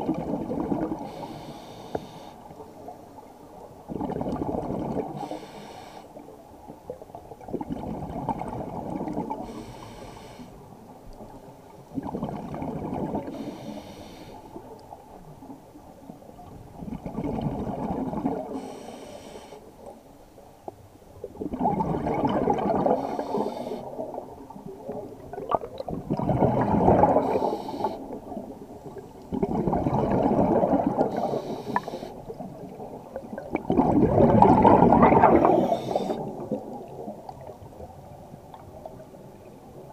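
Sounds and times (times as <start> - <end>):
regulator hiss: 18.6 - 19.6, 31.1 - 32.2
diver exhaling bubbles: 21.4 - 24.1, 25.3 - 28.1, 29.3 - 32.0, 33.4 - 36.9.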